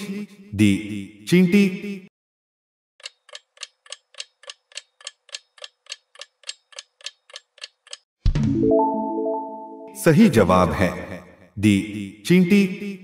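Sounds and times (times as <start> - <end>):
clock ticking: 3.0 - 8.1.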